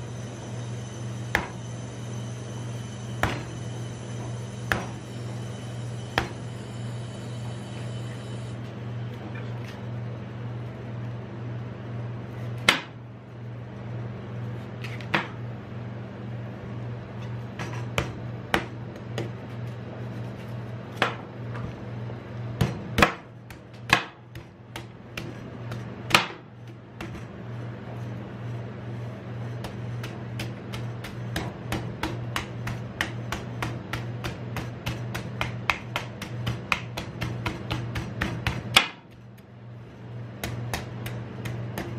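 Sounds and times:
steady low hum: 0.0s - 41.9s
knife chopping coconut husk: 1.3s - 1.6s, 4.7s - 5.0s, 22.6s - 27.2s, 29.6s - 39.5s, 40.4s - 41.9s.

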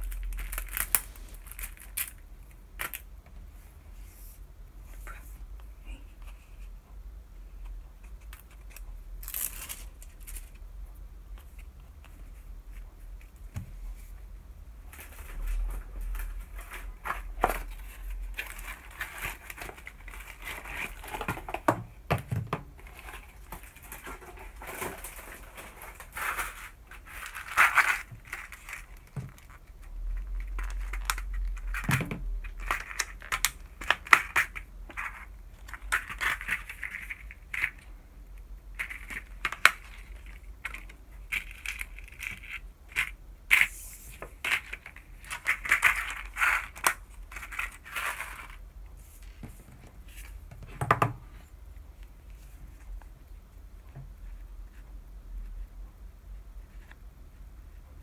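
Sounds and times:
plastic blister pack crinkling: 0.0s - 3.1s, 22.8s - 37.9s.

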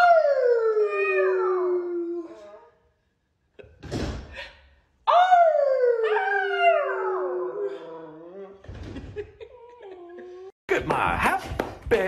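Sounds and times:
puppy howling: 5.1s - 8.6s.

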